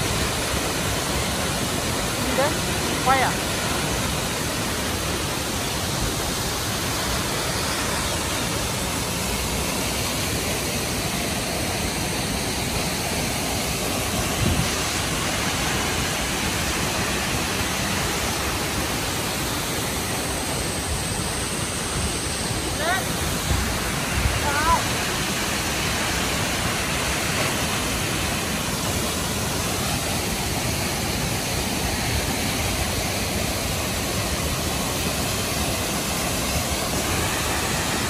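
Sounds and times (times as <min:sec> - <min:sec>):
waterfall rushing: 0:00.0 - 0:38.0.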